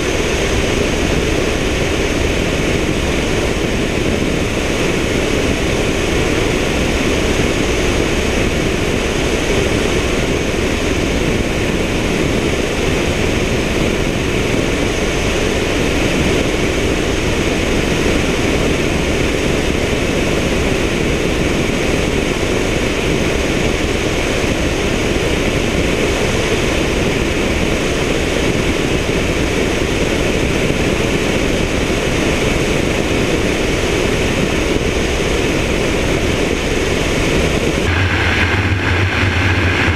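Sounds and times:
helicopter rotor and engine drone: 0:00.0 - 0:39.9
rushing air: 0:23.1 - 0:39.9.

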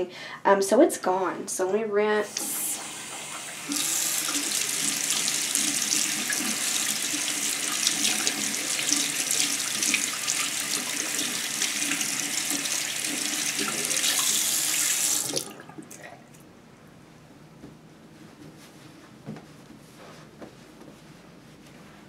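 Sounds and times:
faucet running into sink: 0:02.3 - 0:16.0.

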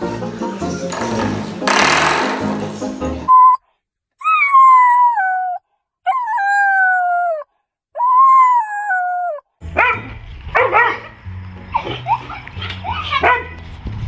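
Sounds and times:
puppy howling: 0:04.2 - 0:10.0
puppy barking: 0:08.0 - 0:11.2, 0:12.9 - 0:13.6.

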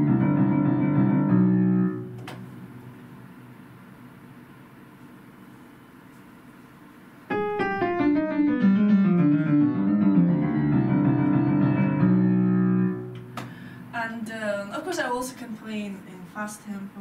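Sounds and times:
upright piano playing: 0:00.0 - 0:02.8, 0:07.3 - 0:13.8.

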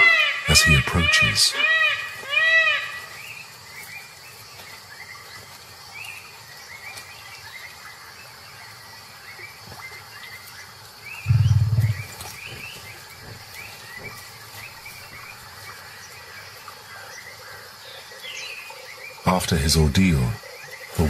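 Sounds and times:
high rising chirps: 0:11.3 - 0:12.2
tiger growling: 0:11.3 - 0:12.2.

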